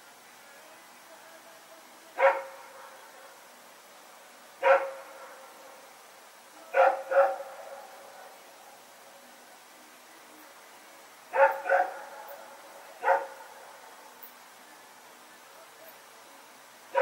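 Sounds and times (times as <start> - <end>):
dog barking with echo: 2.2 - 2.9, 4.6 - 5.2, 6.7 - 7.9, 11.3 - 12.2, 13.0 - 13.6.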